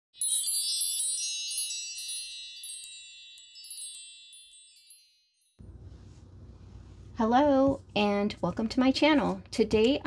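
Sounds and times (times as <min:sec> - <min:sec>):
high tinkling chimes: 0:00.1 - 0:05.6.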